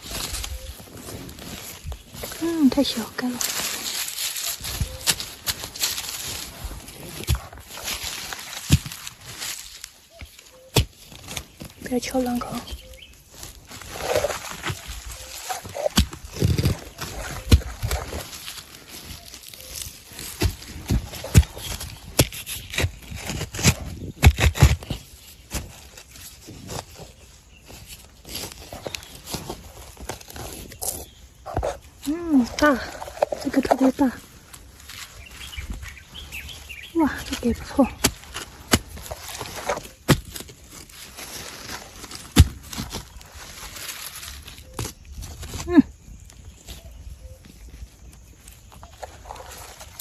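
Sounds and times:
dirt and pine needles rustling: 0.0 - 50.0
scraping and digging sandy soil: 0.0 - 50.0.

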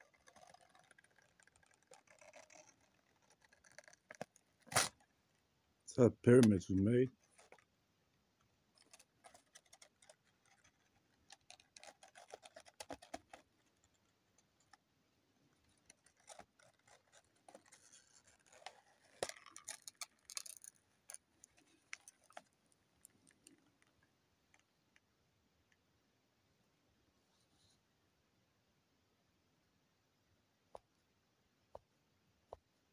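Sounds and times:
paper crinkling while folded: 0.0 - 5.1, 8.8 - 14.8, 15.6 - 23.6.

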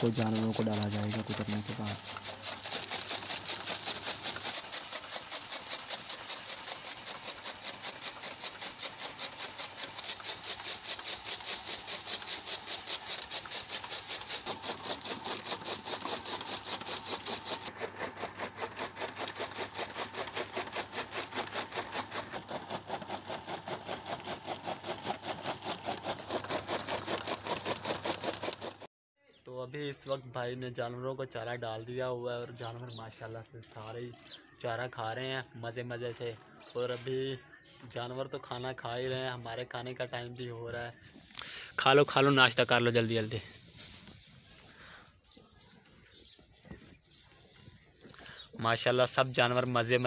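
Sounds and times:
chaff cutter knives chopping stalks: 0.0 - 28.8.

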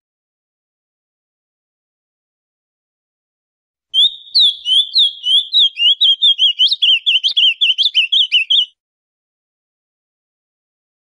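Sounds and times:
bird singing whistled notes: 4.0 - 8.8.

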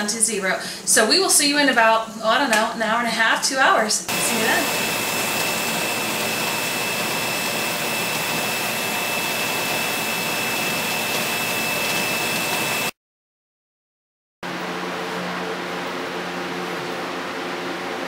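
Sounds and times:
steam venting hiss: 4.1 - 12.9.

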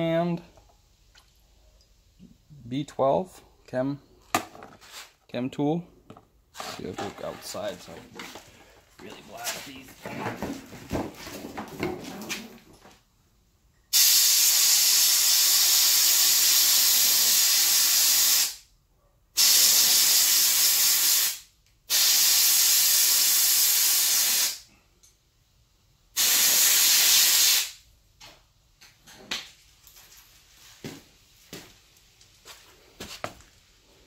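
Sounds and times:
compressed air hissing: 13.9 - 18.6, 19.4 - 24.7, 26.2 - 27.8.

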